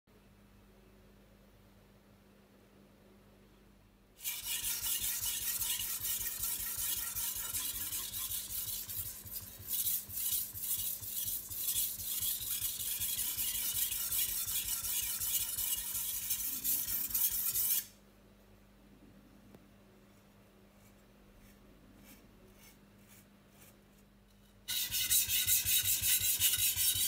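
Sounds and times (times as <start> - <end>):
knife scraping on whetstone: 4.2 - 17.9, 24.7 - 27.0.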